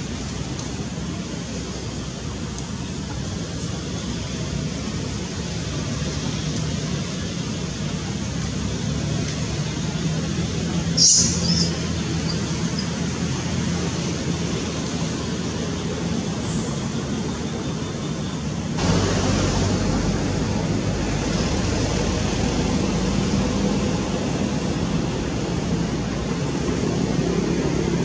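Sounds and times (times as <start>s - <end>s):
rushing outdoor background noise: 0.0s - 28.0s.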